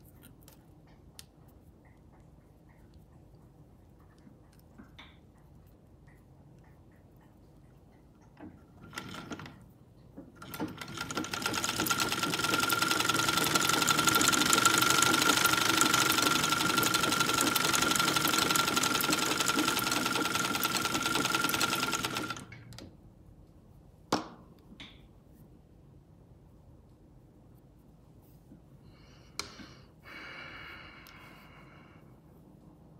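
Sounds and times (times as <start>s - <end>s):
sewing machine whirring: 8.8s - 9.6s, 10.4s - 22.9s.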